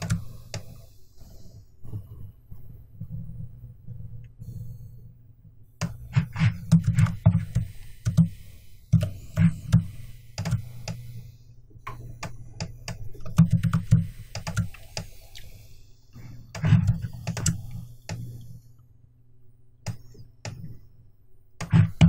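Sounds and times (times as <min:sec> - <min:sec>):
computer keyboard clicking: 0:00.0 - 0:00.7, 0:10.4 - 0:11.0, 0:11.9 - 0:15.1, 0:16.6 - 0:18.3
low steady hum: 0:00.0 - 0:22.0.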